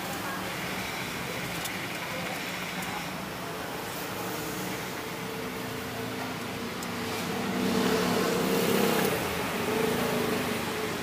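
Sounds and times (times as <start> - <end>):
vehicle engine passing by: 7.0 - 10.9.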